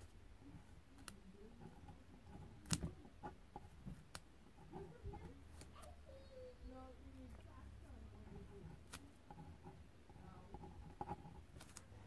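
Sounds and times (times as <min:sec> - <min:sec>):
pen writing on paper: 0:08.2 - 0:11.6.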